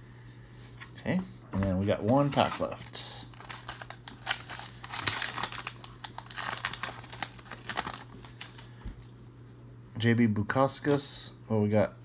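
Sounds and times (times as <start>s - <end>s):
cards handled: 1.6s - 8.7s
wrapper torn open and crinkled: 3.1s - 8.7s.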